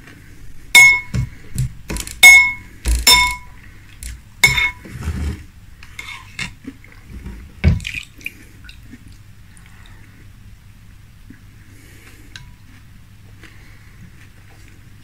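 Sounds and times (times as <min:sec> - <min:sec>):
spoon clinking against glass bowl: 0:00.8 - 0:01.2, 0:02.2 - 0:03.5, 0:04.4 - 0:04.8
spoon scraping and stirring: 0:04.4 - 0:06.6.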